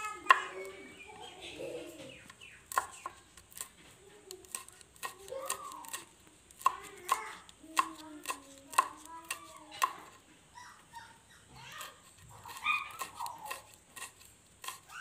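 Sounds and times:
knife chopping on wooden board: 0:00.3 - 0:00.5, 0:02.7 - 0:03.7, 0:04.4 - 0:10.2, 0:12.1 - 0:14.9.

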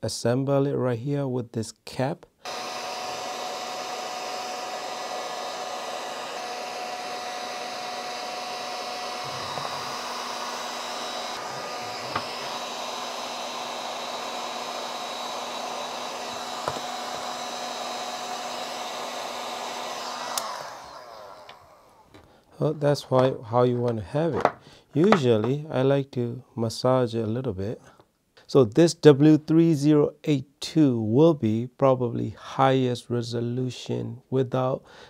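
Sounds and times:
heat gun blowing: 0:02.4 - 0:22.5.

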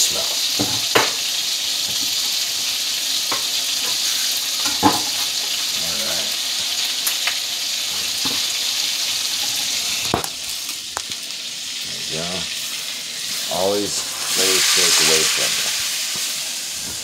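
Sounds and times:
butter sizzling in frying pan: 0:00.0 - 0:17.0.

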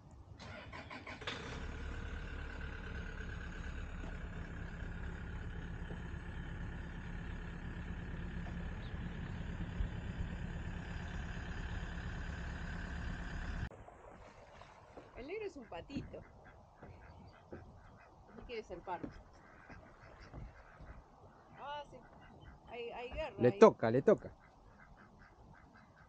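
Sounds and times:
engine running with whine: 0:00.4 - 0:13.7.

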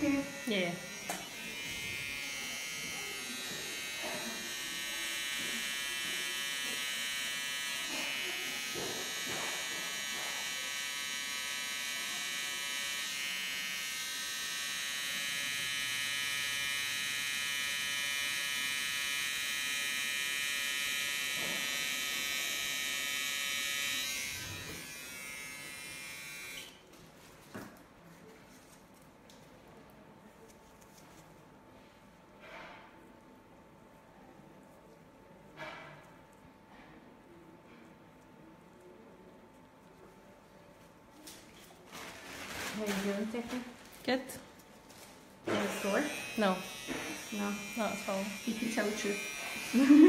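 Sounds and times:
high-pitched pen buzz: 0:00.0 - 0:26.8, 0:45.5 - 0:50.0.

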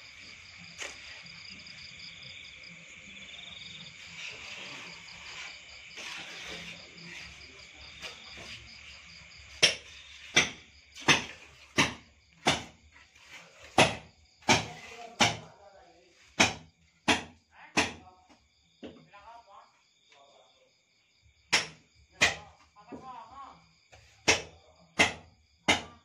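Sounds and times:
crickets chirping: 0:00.0 - 0:26.0
sharp evenly spaced knocks: 0:09.5 - 0:12.8, 0:13.7 - 0:15.5, 0:16.4 - 0:18.0, 0:21.5 - 0:22.6, 0:24.2 - 0:26.0.

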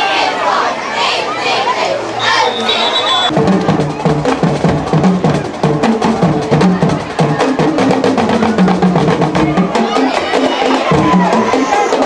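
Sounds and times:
rapid drumming: 0:03.3 - 0:12.0.

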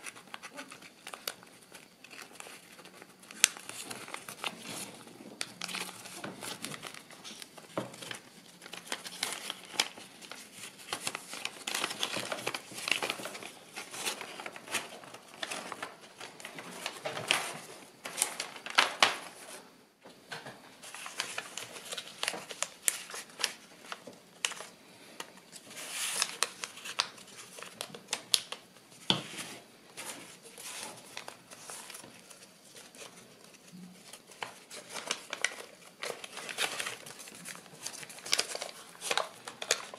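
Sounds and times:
paper rustling and crackling: 0:00.0 - 0:19.7, 0:20.8 - 0:39.9.

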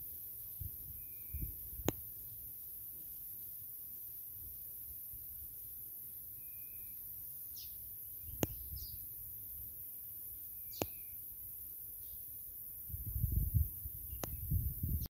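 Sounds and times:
faint bird chirps: 0:00.0 - 0:15.0
sharp clicks: 0:08.4 - 0:08.6, 0:10.7 - 0:11.0.

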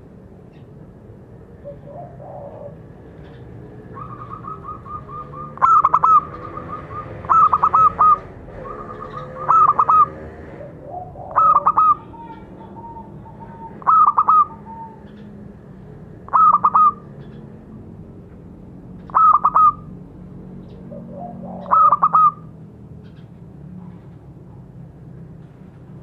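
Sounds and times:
dove cooing: 0:01.5 - 0:17.5, 0:19.1 - 0:20.0, 0:20.6 - 0:22.6.

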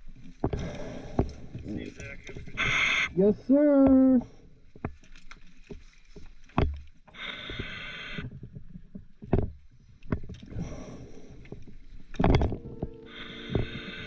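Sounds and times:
rumbling exhalation: 0:00.4 - 0:03.2, 0:07.1 - 0:08.5, 0:10.4 - 0:14.0
regulator inhale hiss: 0:02.6 - 0:03.1, 0:07.1 - 0:08.3, 0:13.0 - 0:14.0.

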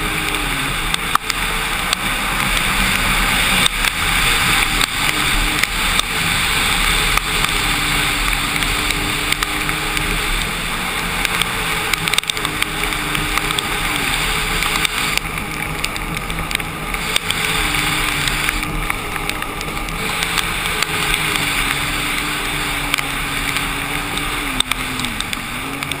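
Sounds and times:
personal watercraft engine: 0:00.0 - 0:26.0
rush of wind and spray: 0:00.0 - 0:26.0.

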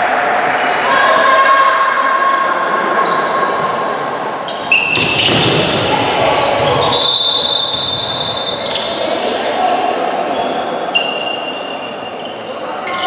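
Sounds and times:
referee's whistle: 0:06.6 - 0:09.0.

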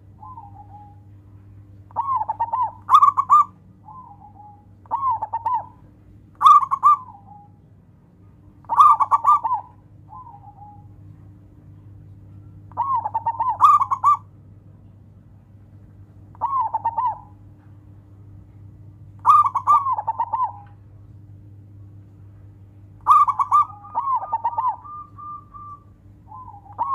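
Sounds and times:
dove cooing: 0:00.0 - 0:07.6, 0:08.6 - 0:14.4, 0:16.3 - 0:17.7, 0:19.2 - 0:20.8, 0:23.0 - 0:26.9.

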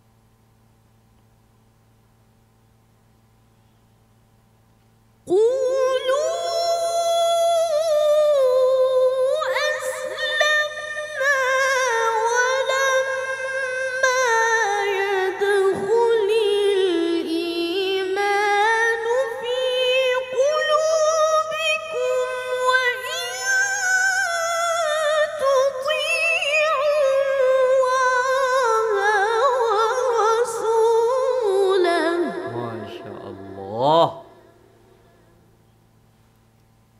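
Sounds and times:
boy reciting melodically: 0:05.3 - 0:34.6.

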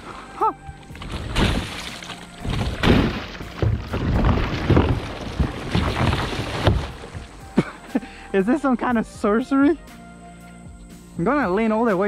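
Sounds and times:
water slapping against boat hull: 0:00.9 - 0:07.4.

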